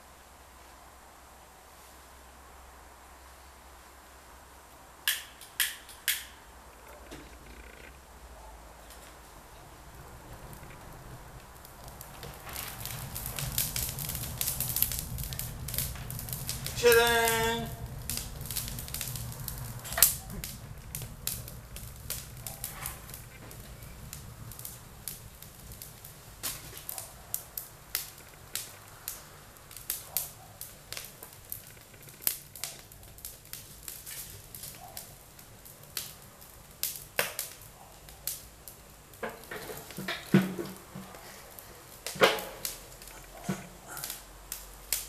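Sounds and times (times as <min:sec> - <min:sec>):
wood fire crackling and popping: 0:04.6 - 0:45.0.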